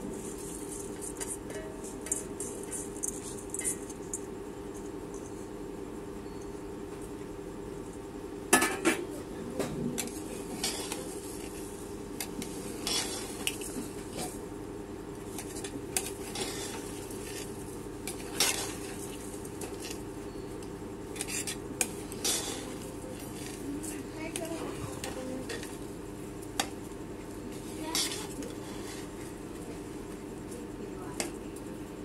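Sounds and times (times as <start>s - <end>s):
steady low hum: 0.0s - 32.0s
metal spoon scraping a pot: 21.2s - 22.8s, 27.9s - 29.1s.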